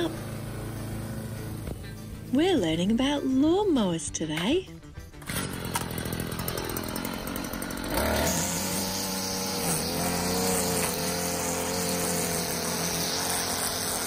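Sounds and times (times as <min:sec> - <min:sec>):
garden power tool motor buzzing: 0:00.0 - 0:01.8, 0:05.2 - 0:14.0.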